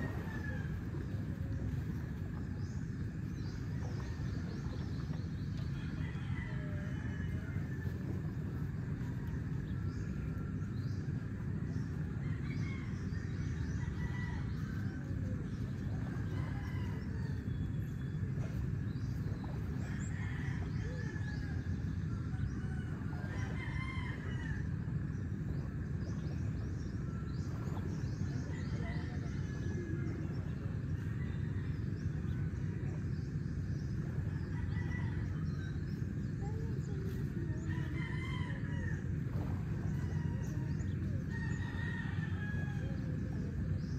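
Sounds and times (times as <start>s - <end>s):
surf on shore: 0.0s - 2.6s
birds calling: 0.0s - 43.9s
wind: 0.0s - 43.9s
roosters crowing: 5.7s - 8.8s, 19.8s - 25.1s, 34.4s - 35.7s, 37.6s - 43.3s.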